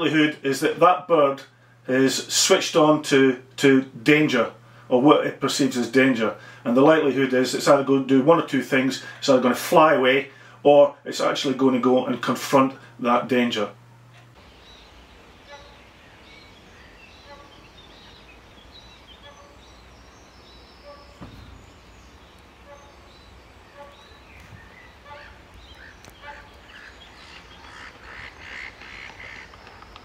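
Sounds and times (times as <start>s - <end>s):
birds calling: 4.3s - 7.8s, 10.2s - 30.0s.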